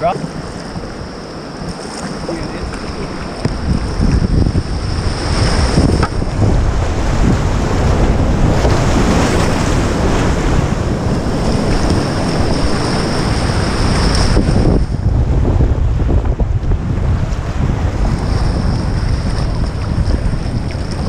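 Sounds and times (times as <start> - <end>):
whitewater rapid rushing: 0.0 - 14.8
water splashing around kayak: 0.0 - 21.0.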